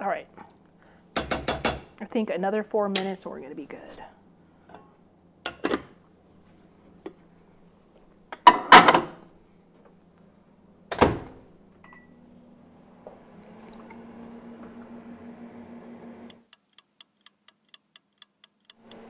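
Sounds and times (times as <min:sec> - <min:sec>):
microwave humming: 0:10.8 - 0:16.5, 0:18.8 - 0:19.0.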